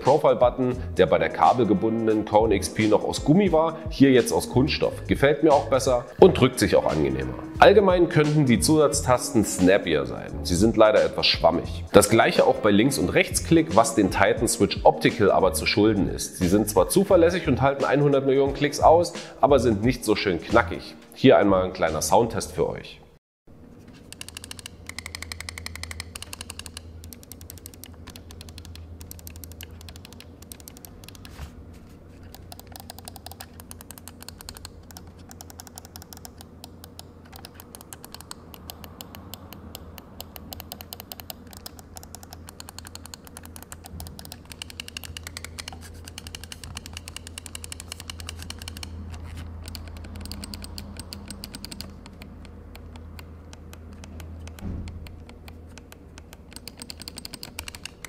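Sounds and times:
mouse buttons clicking: 24.0 - 31.4, 32.2 - 58.0.

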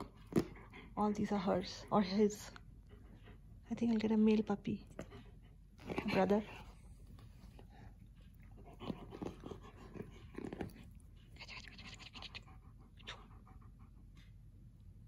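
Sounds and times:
dog panting: 0.0 - 15.0
low mouth sounds from dog: 7.6 - 14.3.

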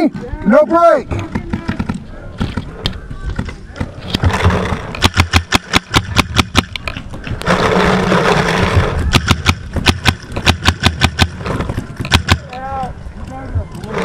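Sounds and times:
paintball marker firing sharp pops: 3.4 - 7.0, 9.1 - 11.4, 12.0 - 12.4.

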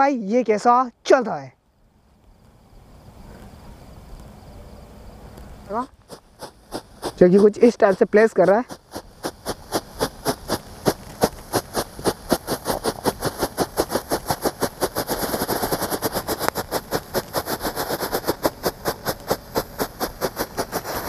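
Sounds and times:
firecracker fizzing hiss: 5.4 - 21.0
firecracker popping: 5.4 - 21.0.

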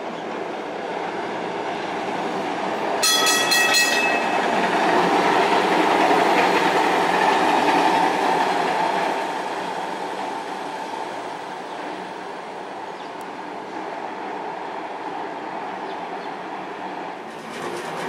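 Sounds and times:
streetcar running on rails: 0.0 - 18.0
streetcar warning bell: 3.0 - 5.1.

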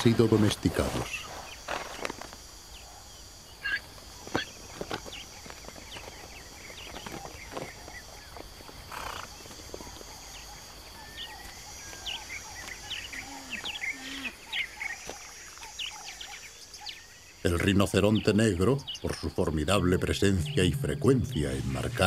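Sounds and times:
bird chirps: 18.0 - 22.0.

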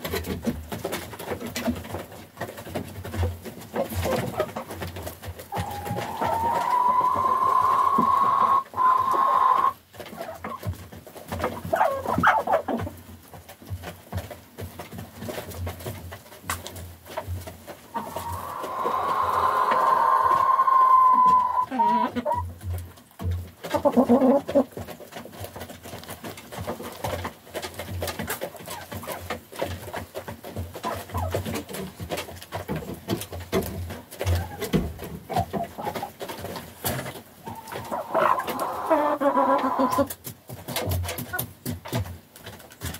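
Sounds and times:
chickens pecking feed: 0.0 - 42.9
hen clucking: 3.3 - 13.0, 17.7 - 22.6, 23.6 - 24.9, 28.0 - 32.3, 34.1 - 40.2
beaks tapping on wooden trough: 21.2 - 42.9.

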